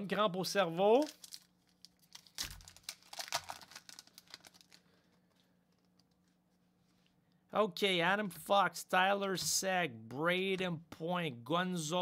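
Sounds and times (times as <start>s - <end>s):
wrapper tearing and crinkling: 1.0s - 4.8s.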